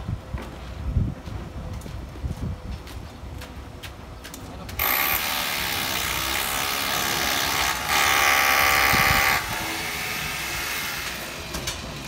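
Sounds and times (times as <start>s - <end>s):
power tool motor whining: 4.8s - 11.6s.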